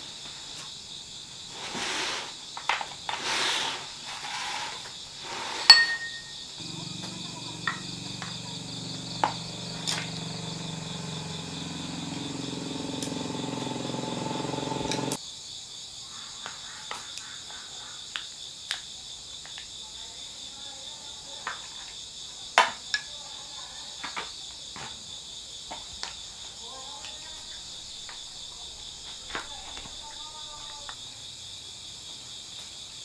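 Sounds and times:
crickets chirping: 0:00.0 - 0:33.0
steady low hum: 0:06.2 - 0:15.2.

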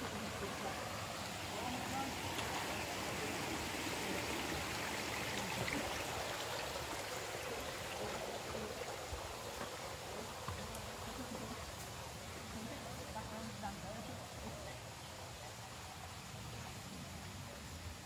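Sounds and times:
water rushing over rocks: 0:00.0 - 0:13.0.

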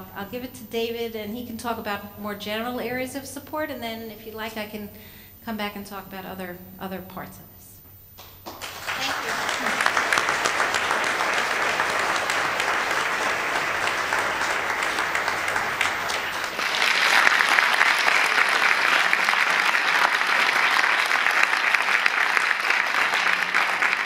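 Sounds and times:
audience applauding: 0:08.4 - 0:24.0.

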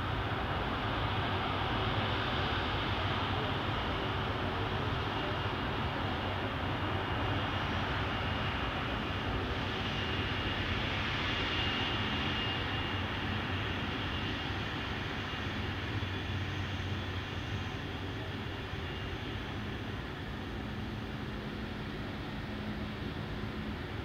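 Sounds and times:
jet engines running: 0:00.0 - 0:24.0.

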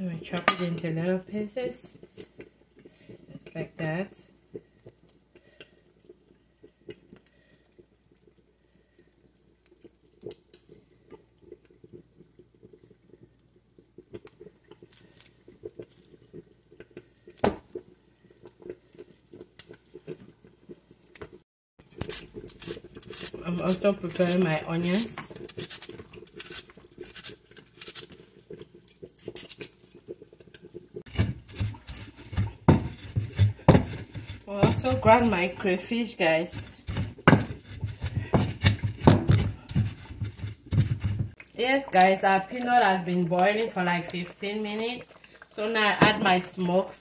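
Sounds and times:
knife slicing onion crunch: 0:22.0 - 0:28.1, 0:31.1 - 0:35.5, 0:36.8 - 0:41.3.

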